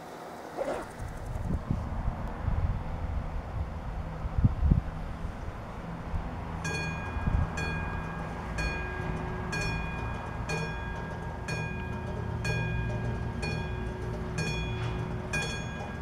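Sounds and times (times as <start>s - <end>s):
level crossing warning bell: 6.5s - 16.0s.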